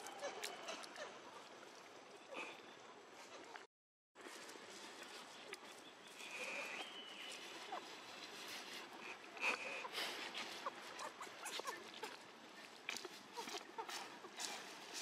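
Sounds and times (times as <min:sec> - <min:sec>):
monkey squeaking: 0:11.0 - 0:12.2.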